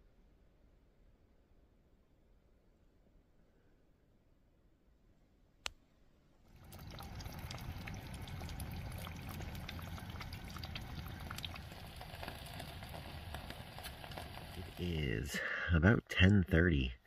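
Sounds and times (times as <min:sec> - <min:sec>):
eggs sizzling in a skillet: 0:06.5 - 0:15.1.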